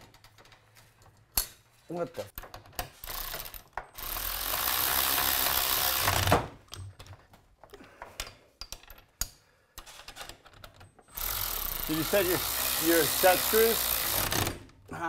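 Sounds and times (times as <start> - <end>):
cordless power driver running: 11.2 - 14.5.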